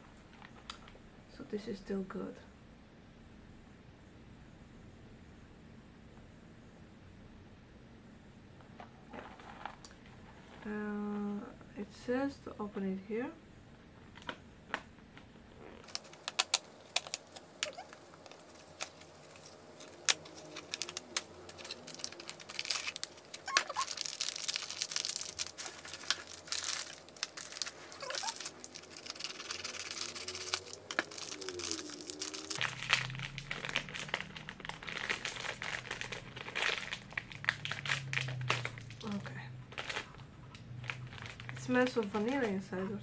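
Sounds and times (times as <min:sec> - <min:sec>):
foil bag crinkling and tearing: 0:15.8 - 0:42.6.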